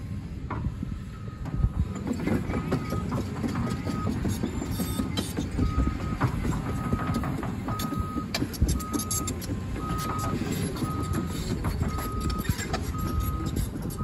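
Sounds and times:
excavator diesel engine: 0.0 - 14.0
travel alarm beeping: 4.8 - 14.0.

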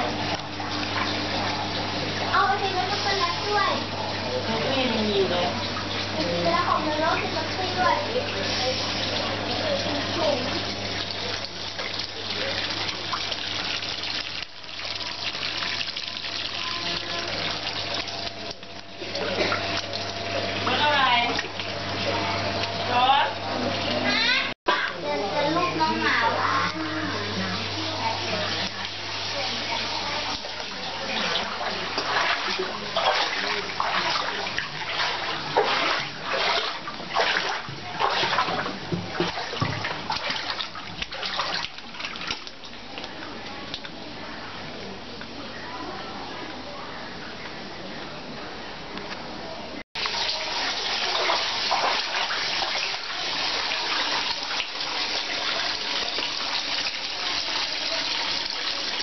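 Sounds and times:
water spraying from hose: 0.0 - 3.9, 6.2 - 23.0, 50.0 - 59.0
water splashing down: 0.0 - 44.0, 50.0 - 59.0
pump humming: 0.0 - 48.0.

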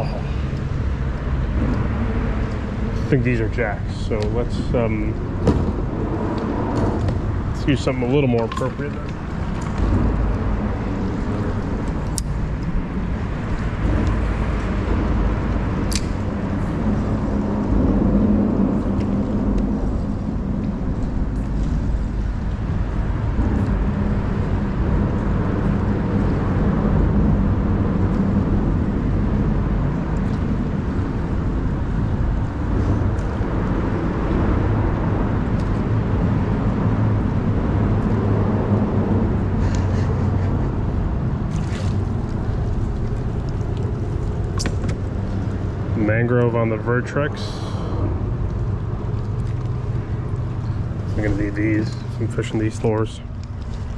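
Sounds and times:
traffic rumble on a bridge: 0.0 - 53.9.

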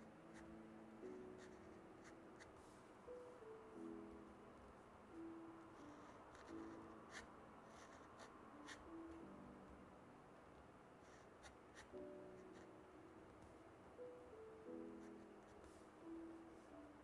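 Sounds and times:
soft piano music: 0.0 - 17.0
pen nib scratching on paper: 0.3 - 2.6, 5.6 - 8.9, 11.0 - 12.8, 15.0 - 15.7.

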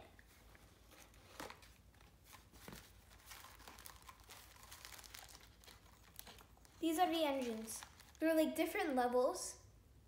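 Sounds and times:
cardboard rustling and crinkling: 0.3 - 8.2.

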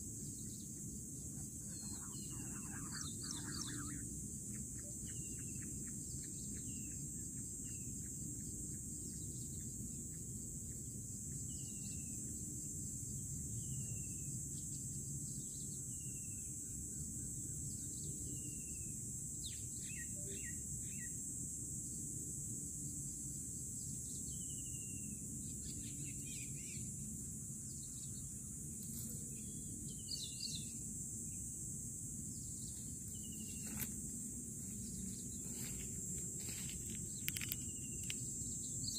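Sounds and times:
insect hiss: 0.0 - 38.9
quail whistled calls: 1.7 - 4.0.

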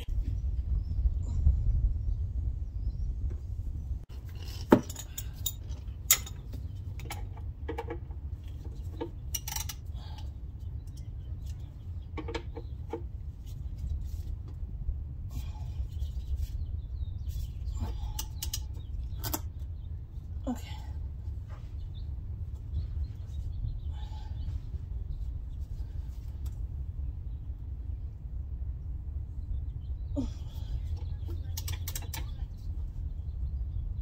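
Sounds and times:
low rumble: 0.0 - 4.4, 10.0 - 34.0
wrench clinking on metal: 4.4 - 7.3.

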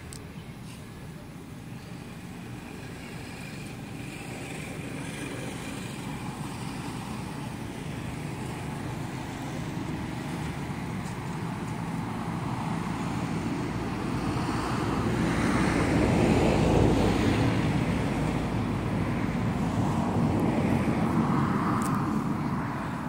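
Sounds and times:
low outdoor rumble and hiss: 0.0 - 13.2.

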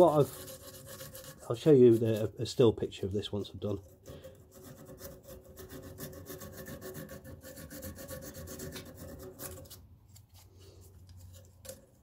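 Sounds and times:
sandpaper rubbing on metal: 0.0 - 2.5, 3.8 - 9.8.

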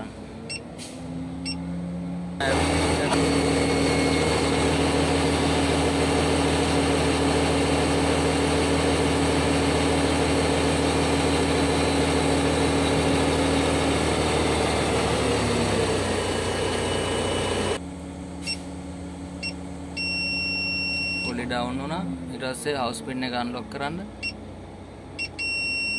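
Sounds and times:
crane engine and hydraulics whine: 0.0 - 25.9
short beeps: 19.4 - 21.4, 25.2 - 25.9.

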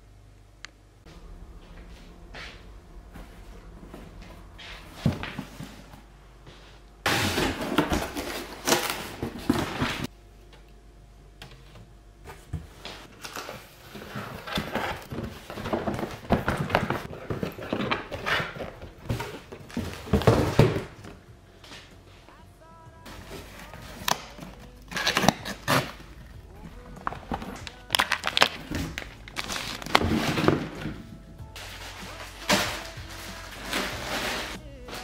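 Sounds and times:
cardboard boxes rustling and knocking: 2.1 - 6.1, 7.0 - 10.1, 12.3 - 21.9, 23.1 - 35.0
cardboard boxes scraping: 4.4 - 10.1, 12.4 - 21.9, 23.1 - 35.0.

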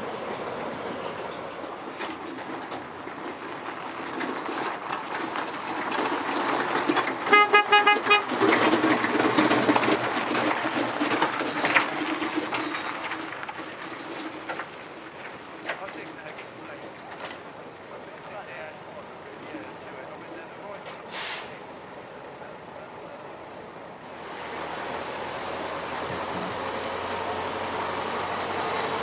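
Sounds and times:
rail wagons rolling past: 0.0 - 29.0
electric vehicle horn toots: 7.2 - 8.4.

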